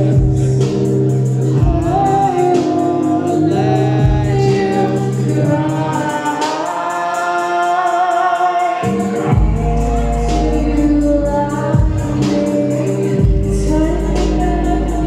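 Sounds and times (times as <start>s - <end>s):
electronic backing track: 0.0s - 15.0s
woman singing into a microphone: 0.0s - 15.0s.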